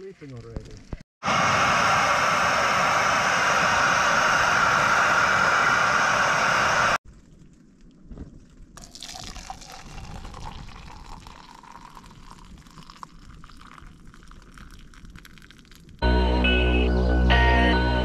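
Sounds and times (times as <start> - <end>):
loud steady hiss: 1.2 - 7.0
water pouring into plastic cup: 8.8 - 16.0.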